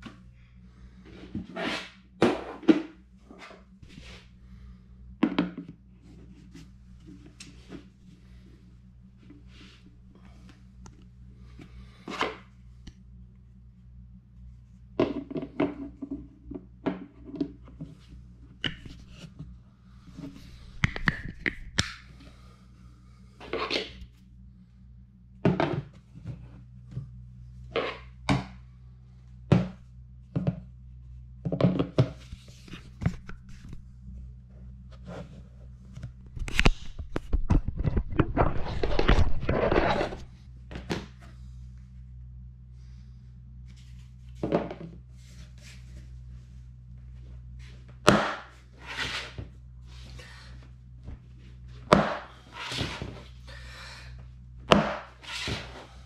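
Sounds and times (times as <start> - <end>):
steady low hum: 0.0 - 56.0
plastic scraping and rubbing: 36.3 - 40.3.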